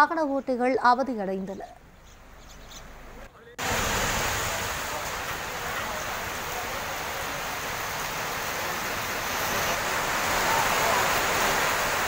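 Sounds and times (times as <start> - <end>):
heavy rain on pavement: 3.6 - 12.0.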